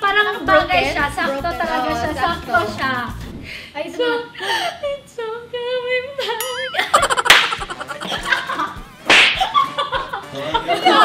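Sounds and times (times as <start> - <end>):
women laughing: 6.8 - 8.8, 9.4 - 11.0
sharp slap: 7.3 - 7.8, 9.0 - 9.6.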